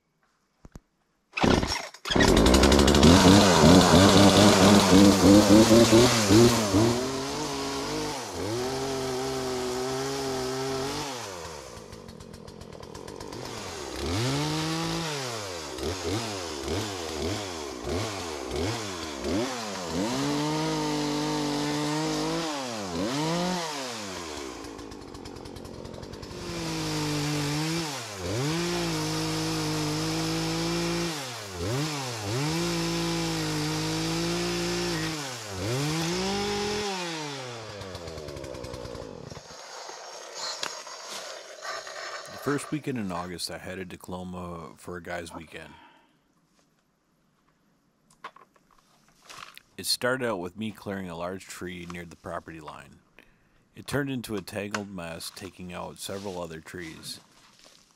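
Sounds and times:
chainsaw cutting wood: 1.4s - 43.2s.

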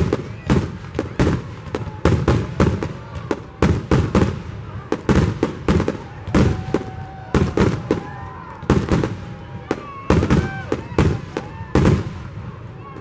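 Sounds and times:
fireworks bangs with echo: 0.0s - 13.0s.

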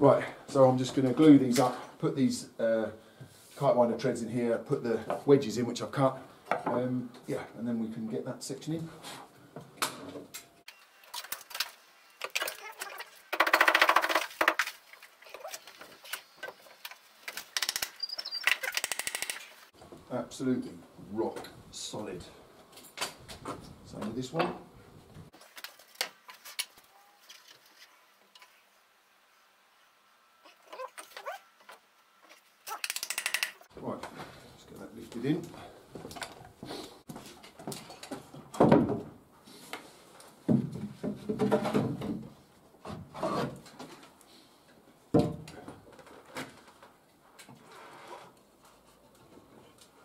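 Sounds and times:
wooden boards knocking and scraping: 12.2s - 17.8s, 40.5s - 43.6s.

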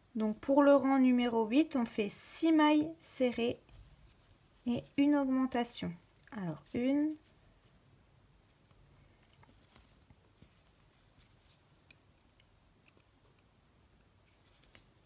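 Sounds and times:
crochet hook clicks and rustles: 8.6s - 15.0s.

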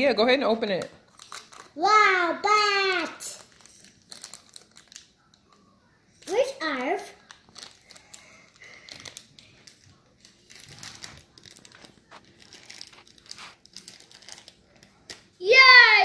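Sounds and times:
plastic bag crinkling: 1.0s - 1.8s, 3.2s - 5.3s, 7.1s - 15.4s.

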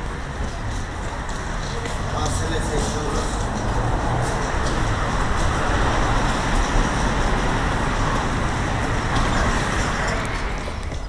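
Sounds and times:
road traffic: 0.0s - 11.0s.

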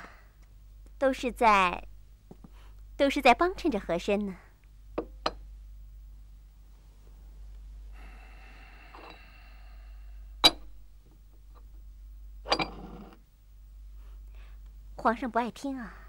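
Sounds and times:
porcelain lid scraping cup: 12.5s - 13.2s.

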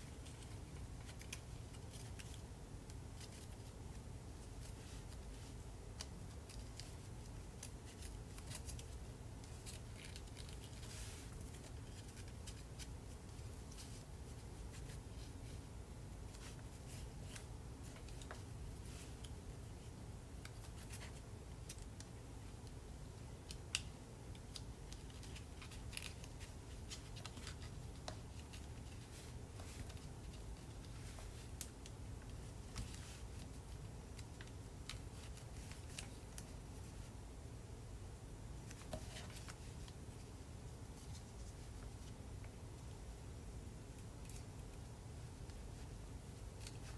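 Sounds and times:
paper being folded: 0.1s - 15.6s, 24.4s - 37.1s.

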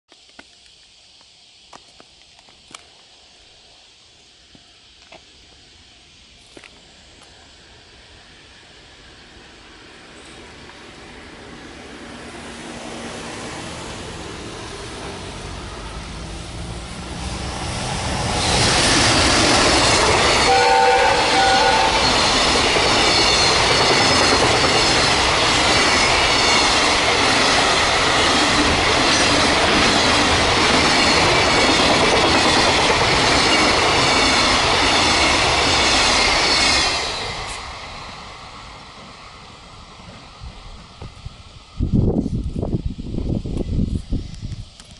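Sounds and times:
wheel and rail noise: 0.1s - 44.9s
train rumble: 0.2s - 44.9s
locomotive whistle blasts: 20.4s - 22.4s.

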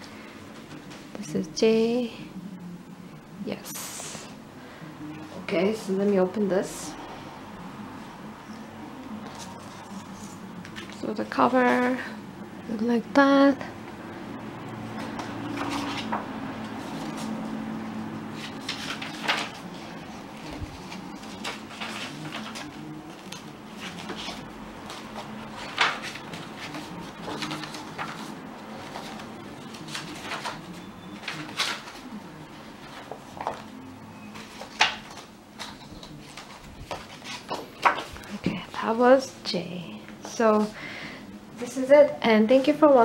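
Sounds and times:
paper pages turning: 15.0s - 17.6s, 18.3s - 38.4s.

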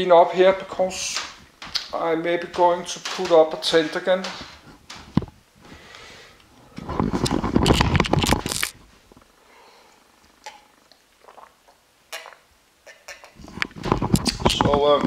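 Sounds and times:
camera handling rustle: 7.0s - 8.8s
man swallowing drink: 10.4s - 14.5s.

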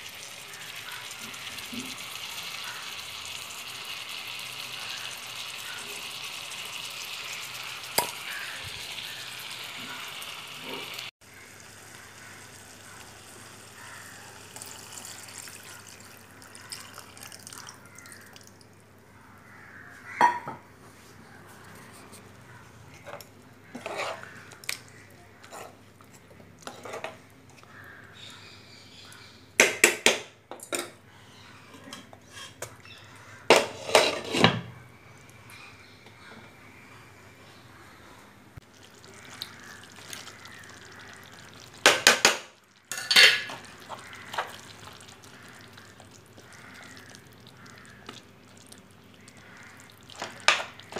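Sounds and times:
faint liquid bubbling: 0.0s - 19.8s, 38.6s - 50.9s
metal spoon stirring in a pan: 23.0s - 24.4s, 25.4s - 27.2s.

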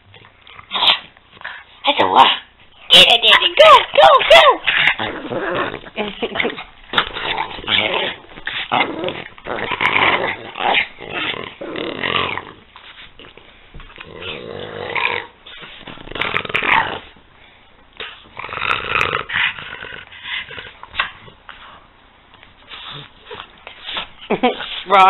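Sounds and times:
dogs growling: 4.2s - 17.2s, 18.0s - 21.6s.

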